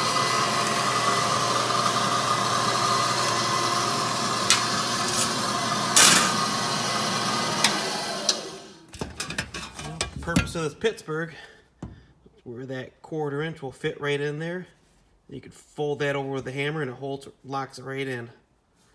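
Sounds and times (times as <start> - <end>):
machine humming: 0.0 - 8.8.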